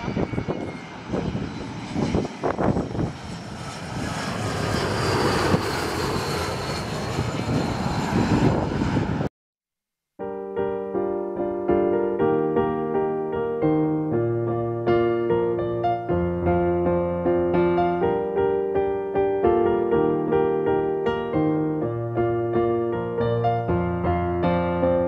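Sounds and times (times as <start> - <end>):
jet airliner engine roar: 0.0 - 9.3, 14.5 - 25.0
electric piano music: 10.2 - 25.0.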